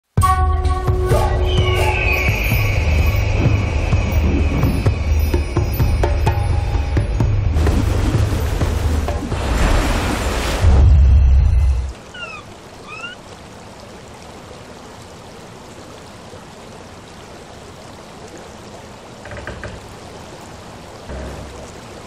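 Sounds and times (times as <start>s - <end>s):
rushing water: 0.1s - 22.0s.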